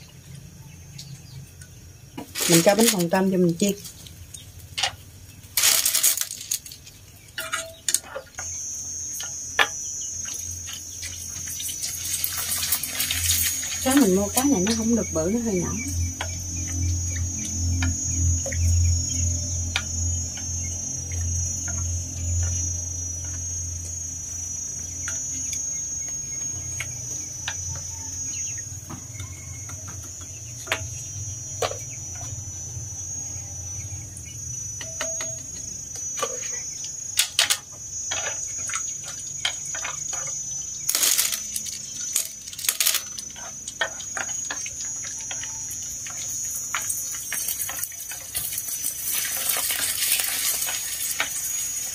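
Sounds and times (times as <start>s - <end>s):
crackers frying in hot oil: 0.0s - 51.9s
high insect trill: 0.0s - 51.9s
chopsticks scraping a wok: 43.0s - 51.5s.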